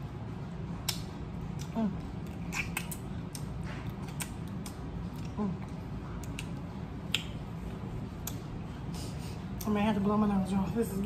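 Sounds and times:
low steady hum: 0:00.0 - 0:11.0
mouth smacks: 0:00.8 - 0:07.4.

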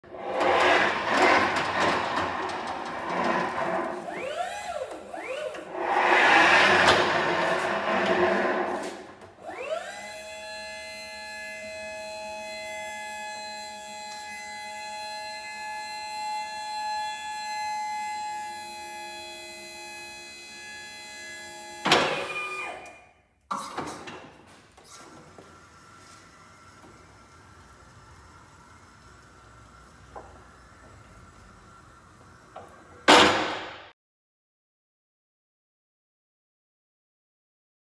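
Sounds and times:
hydraulic rushing noise: 0:00.1 - 0:04.4, 0:05.2 - 0:09.2
hydraulic pump motor whining: 0:00.2 - 0:12.6.

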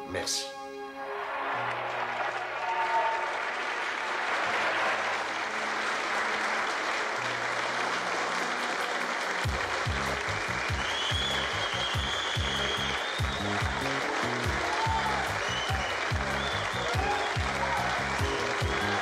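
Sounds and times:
crowd applauding: 0:01.1 - 0:19.0
background music with a beat: 0:09.3 - 0:19.0.

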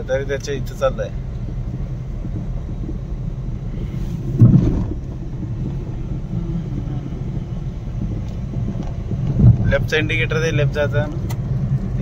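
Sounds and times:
car engine and tyres rumbling: 0:00.0 - 0:12.0
short thump: 0:03.8 - 0:06.0.

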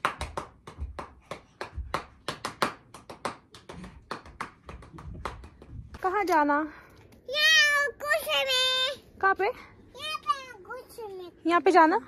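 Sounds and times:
person clapping hands: 0:00.0 - 0:05.7.

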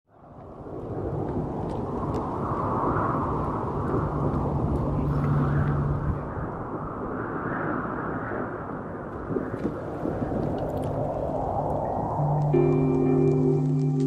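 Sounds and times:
distant city rumble: 0:00.1 - 0:14.0
low engine hum: 0:03.2 - 0:06.7.

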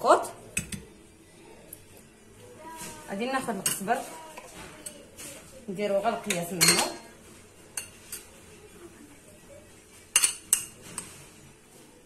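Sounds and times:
metal spoon clinking on ceramic bowl: 0:06.6 - 0:07.0, 0:10.2 - 0:10.7.

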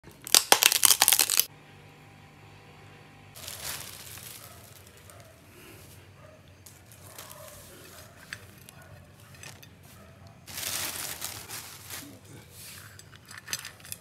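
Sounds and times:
plastic bag rustling: 0:03.4 - 0:06.0, 0:06.7 - 0:12.9.

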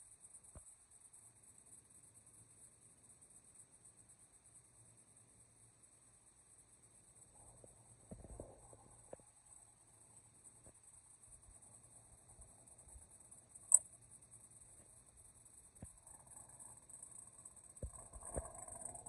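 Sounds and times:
light clicks: 0:13.6 - 0:13.9.

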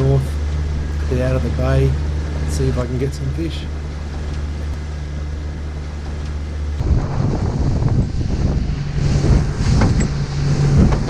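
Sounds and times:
outboard motor humming: 0:00.0 - 0:11.0
wind noise on microphone: 0:06.0 - 0:11.0.

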